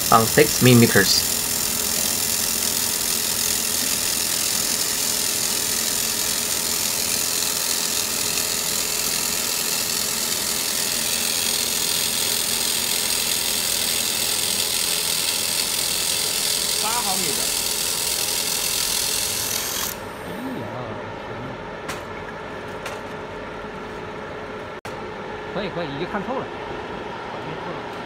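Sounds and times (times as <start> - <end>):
laser welding hiss: 0.0 - 20.3.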